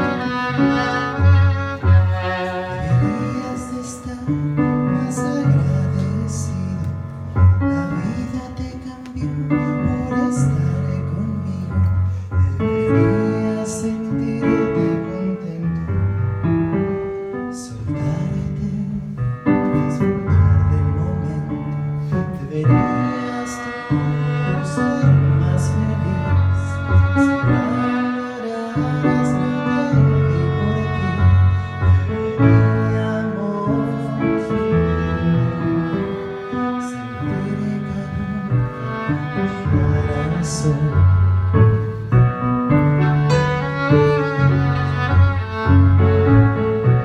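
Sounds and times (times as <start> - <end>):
violin playing: 0.0 - 18.8, 19.4 - 47.0
keyboard low chords: 24.8 - 47.0.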